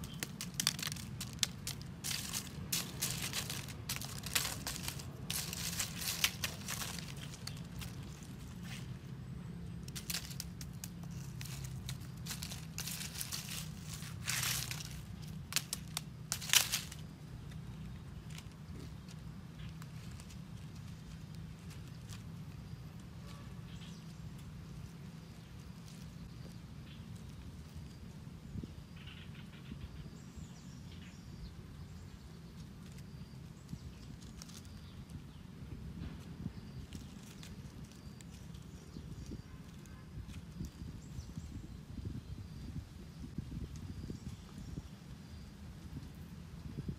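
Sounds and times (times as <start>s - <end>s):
steady low hum: 0.0s - 39.5s
dry leaves rustling and crackling: 0.0s - 46.9s.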